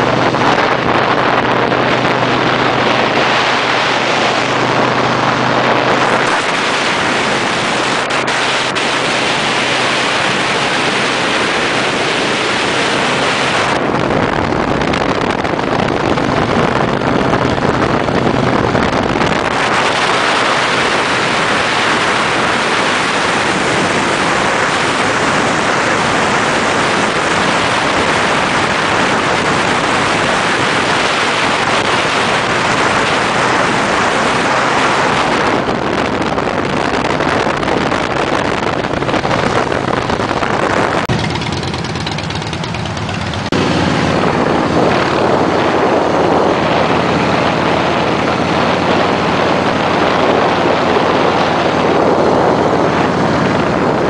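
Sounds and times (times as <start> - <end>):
motorcycle engine drone: 0.0 - 54.0
wind rush on microphone: 0.0 - 54.0.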